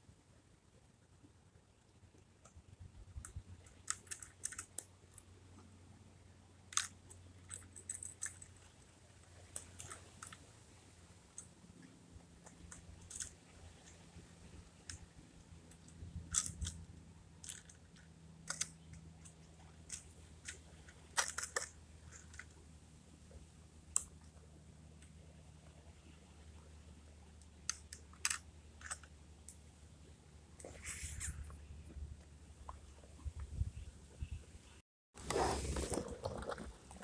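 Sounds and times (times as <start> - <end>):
plastic toy truck clicking: 3.3 - 4.9, 6.7 - 8.6, 12.6 - 14.0, 15.7 - 16.8, 17.4 - 22.6, 27.7 - 29.1.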